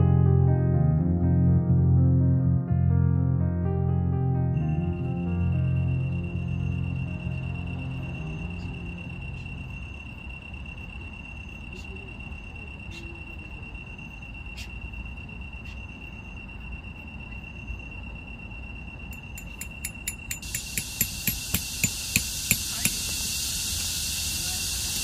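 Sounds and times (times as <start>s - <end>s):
crickets trilling: 4.6s - 25.0s
hiss: 19.9s - 25.0s.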